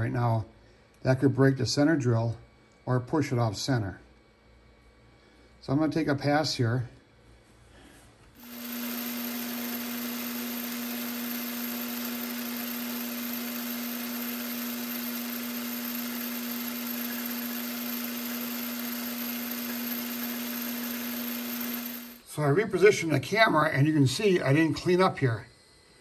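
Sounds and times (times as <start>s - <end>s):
metal lathe humming and whining: 8.4s - 22.3s.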